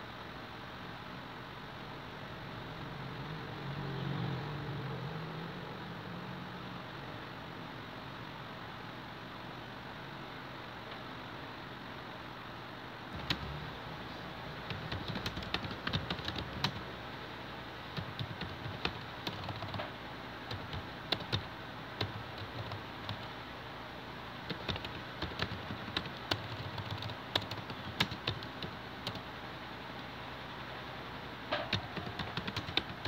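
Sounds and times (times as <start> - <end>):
background hiss: 0.0 - 33.0
keyboard typing: 13.1 - 13.8, 14.6 - 16.9, 17.9 - 23.4, 24.4 - 29.3, 31.5 - 33.0.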